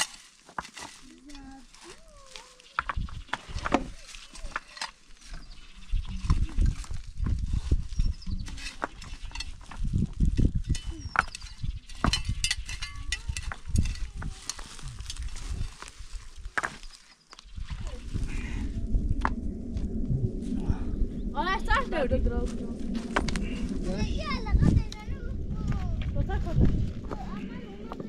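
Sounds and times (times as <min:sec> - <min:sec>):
stones knocking and scraping: 0:00.0 - 0:01.6, 0:02.4 - 0:05.5, 0:06.3 - 0:17.4
low rumbling: 0:01.1 - 0:16.6, 0:17.4 - 0:28.0.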